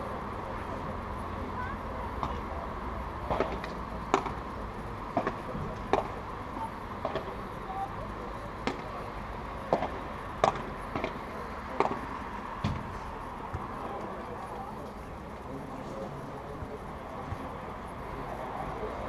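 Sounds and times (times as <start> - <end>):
ball bouncing on court: 13.5 - 13.8.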